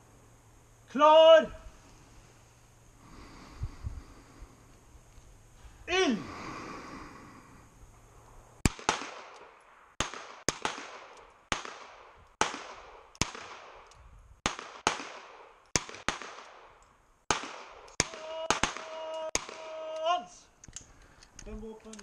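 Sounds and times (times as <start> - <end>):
handgun shots echoing: 8.6 - 13.9.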